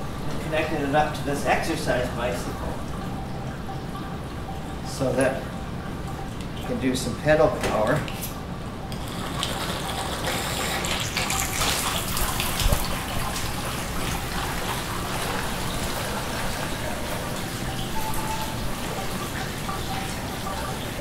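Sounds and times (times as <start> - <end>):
water jets spraying and splattering: 8.9 - 21.0.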